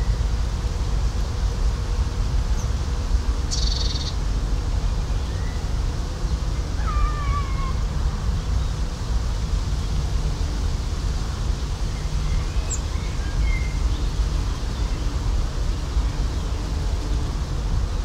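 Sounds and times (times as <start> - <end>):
faint bird chirps: 3.5 - 4.2.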